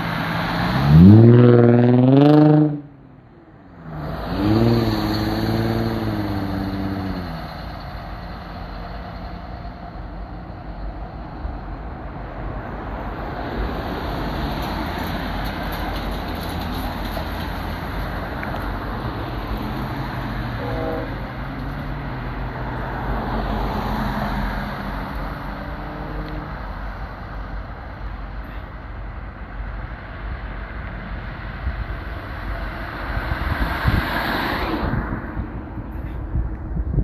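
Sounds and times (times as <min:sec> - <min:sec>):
car passing close: 0:00.0 - 0:09.4, 0:12.1 - 0:26.8, 0:31.5 - 0:37.0
approaching train rumble: 0:00.0 - 0:37.0
road traffic rumble: 0:00.0 - 0:37.0
distant train horn blasts: 0:20.5 - 0:21.4.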